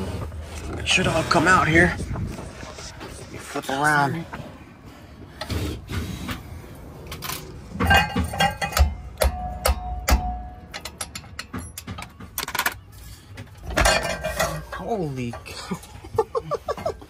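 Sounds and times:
steel tools knocking on metal: 0:07.8 - 0:12.4.

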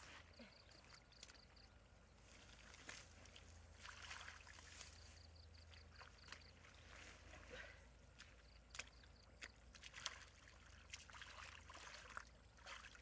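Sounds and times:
hands sloshing in muddy water: 0:00.0 - 0:13.0
sharp little splashes: 0:02.6 - 0:05.1, 0:08.2 - 0:13.0.

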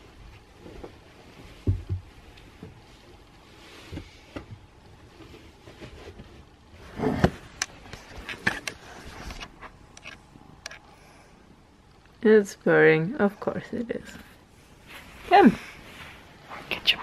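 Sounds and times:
bedding rustling: 0:00.0 - 0:09.9, 0:14.0 - 0:17.0.

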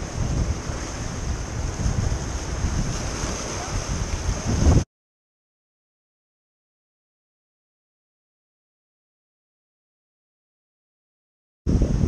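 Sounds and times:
ocean surf splashing on rocks: 0:00.0 - 0:04.8
wind buffeting microphone: 0:00.0 - 0:04.9, 0:11.7 - 0:12.0.

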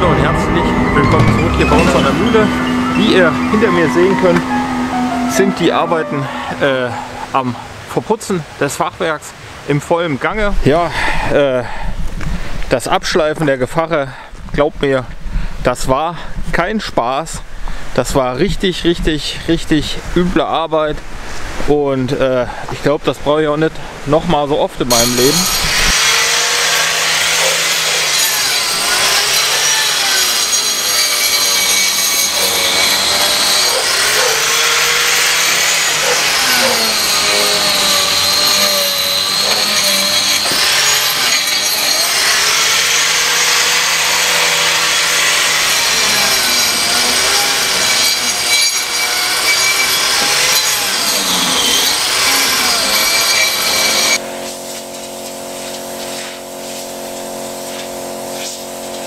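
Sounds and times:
angle grinder grinding cement: 0:00.0 - 0:07.4, 0:24.9 - 0:59.0
steady machine hum: 0:00.0 - 0:07.8, 0:54.2 - 0:59.0.

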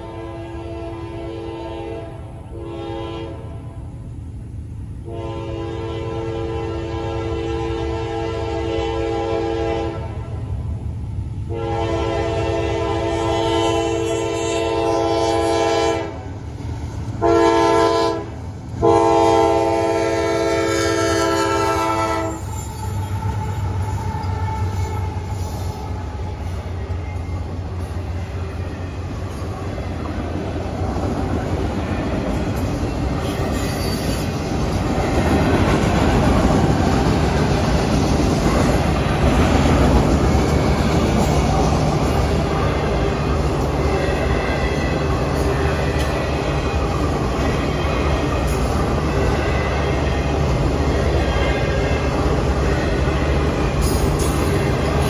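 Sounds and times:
locomotive air horn blasts: 0:00.0 - 0:03.8, 0:05.0 - 0:10.2, 0:11.4 - 0:16.2, 0:17.2 - 0:27.3
train wheels clicking over rail joints: 0:22.3 - 0:43.9, 0:44.6 - 0:49.2, 0:53.5 - 0:55.0.

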